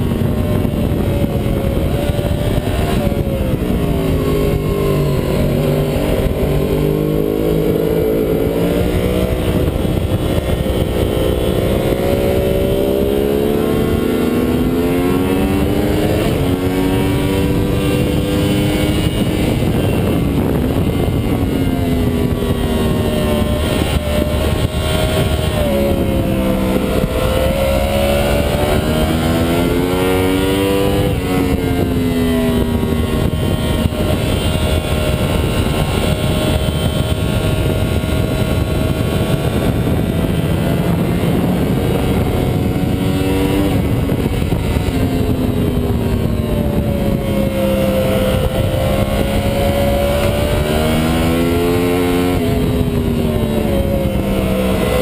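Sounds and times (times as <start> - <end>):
motorcycle engine at speed: 0.0 - 55.0.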